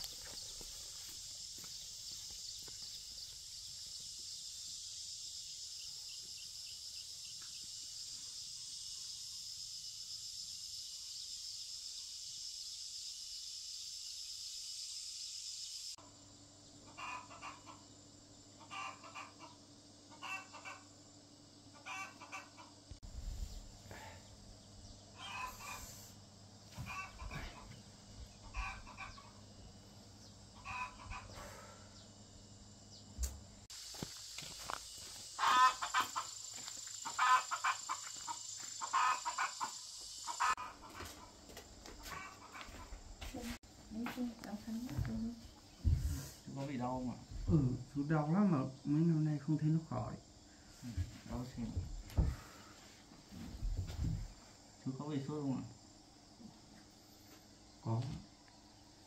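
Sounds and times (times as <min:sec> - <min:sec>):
chickens clucking: 0:16.9 - 0:17.9, 0:18.6 - 0:20.9, 0:21.8 - 0:22.9, 0:25.2 - 0:26.1, 0:26.7 - 0:29.4, 0:30.6 - 0:31.7, 0:35.4 - 0:43.0.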